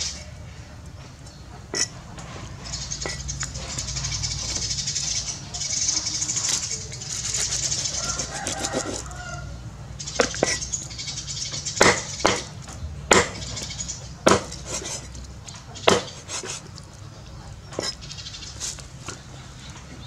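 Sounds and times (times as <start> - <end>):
cleaver chopping on wooden block: 11.8 - 13.5, 14.2 - 15.0, 15.8 - 16.6.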